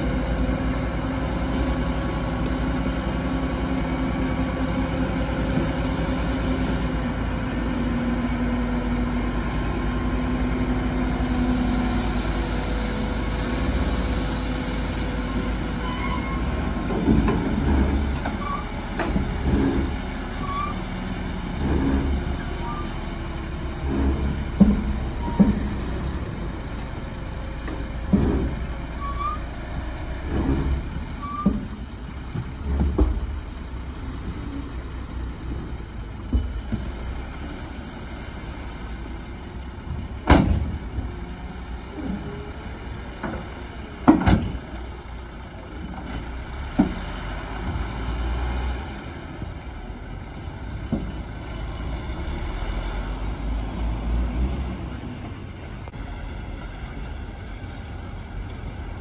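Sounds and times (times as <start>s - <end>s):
truck diesel engines running: 0.0s - 59.0s
dirt load knocking and thudding: 15.1s - 22.8s, 23.6s - 37.0s, 39.8s - 45.0s, 45.6s - 48.0s, 50.7s - 51.4s.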